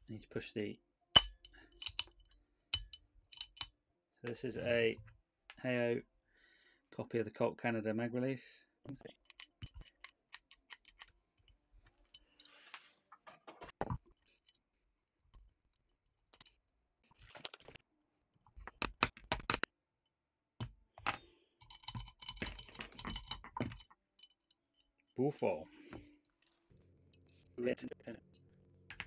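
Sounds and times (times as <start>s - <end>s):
small metal parts clicking: 1.2s - 3.7s, 9.2s - 11.5s, 21.6s - 24.6s.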